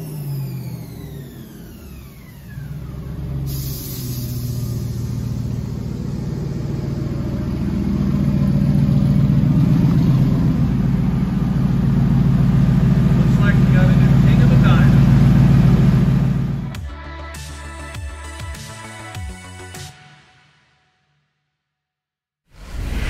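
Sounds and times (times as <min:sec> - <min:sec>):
car engine idling: 0:00.0 - 0:16.8
brief hiss: 0:03.5 - 0:05.3.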